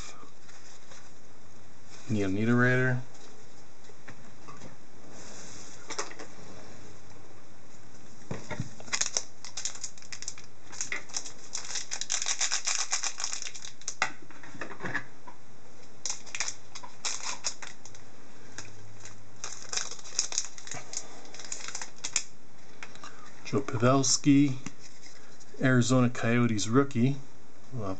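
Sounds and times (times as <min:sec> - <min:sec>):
cards clicking and rustling: 0:08.8 - 0:14.1, 0:16.0 - 0:18.0, 0:18.6 - 0:22.3.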